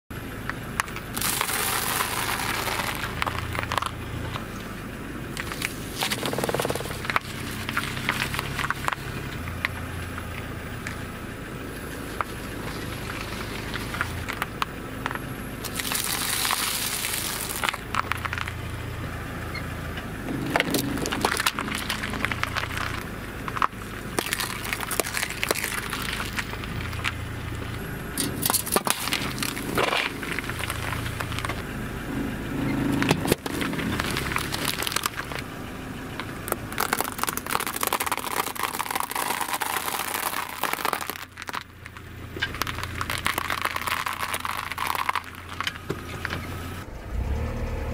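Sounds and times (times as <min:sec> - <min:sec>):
car engine running low: 0:00.1 - 0:47.9
tyre crushing crunchy snacks: 0:00.9 - 0:04.0, 0:05.4 - 0:09.0, 0:15.6 - 0:18.6, 0:20.3 - 0:27.2, 0:28.2 - 0:31.6, 0:32.8 - 0:35.4, 0:36.5 - 0:41.7, 0:42.4 - 0:46.3.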